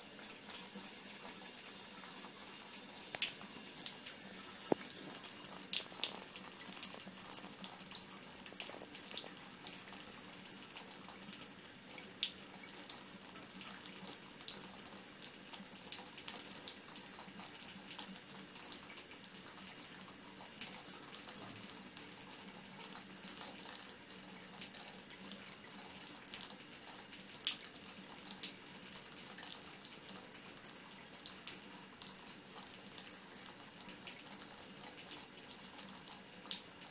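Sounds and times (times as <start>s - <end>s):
water stream splashing into tub: 0.0s - 7.1s.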